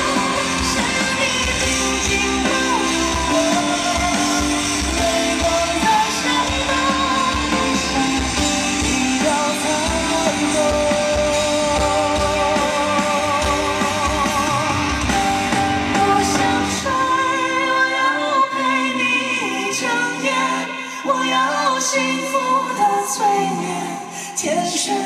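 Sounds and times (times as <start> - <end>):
light band accompaniment: 0.0 - 17.0
bass: 0.0 - 17.8
drums: 0.0 - 25.0
high male voice singing: 0.0 - 25.0.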